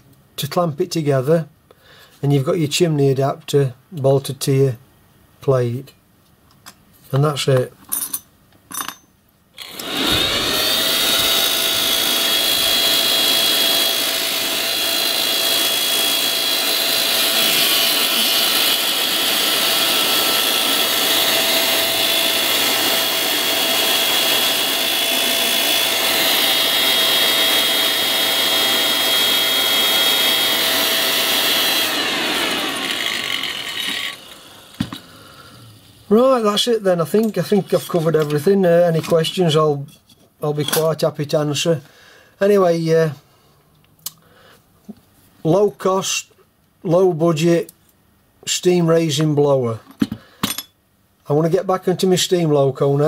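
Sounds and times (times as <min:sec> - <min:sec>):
electric motor whine: 0:09.6 - 0:35.1.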